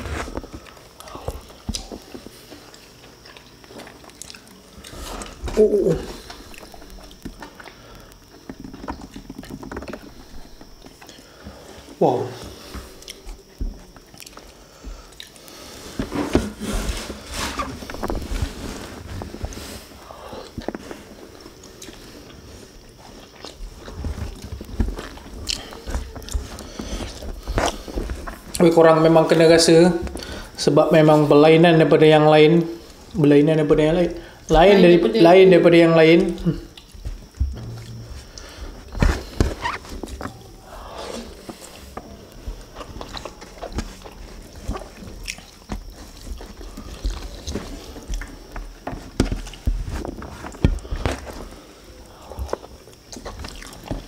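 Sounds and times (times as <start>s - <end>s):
chewing: 0.3s - 5.5s, 12.6s - 15.7s, 20.3s - 28.6s, 36.4s - 48.7s, 52.2s - 54.0s.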